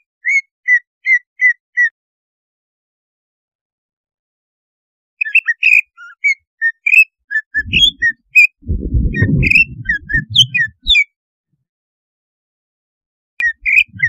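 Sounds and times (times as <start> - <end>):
bird whistling and chirping: 5.2 - 8.2, 9.0 - 11.0, 13.4 - 14.0
low muffled noise: 7.6 - 11.0.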